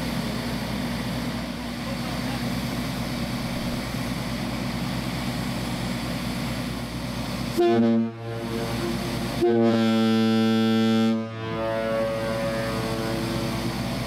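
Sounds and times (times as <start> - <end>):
air compressor engine droning: 0.0 - 14.0
air horn blast: 7.6 - 14.0.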